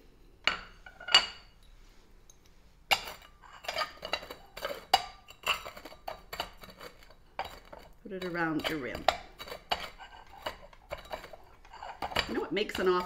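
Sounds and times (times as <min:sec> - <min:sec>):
glass clinking: 0:00.4 - 0:07.7
glass rim scraping on plate: 0:02.9 - 0:13.0.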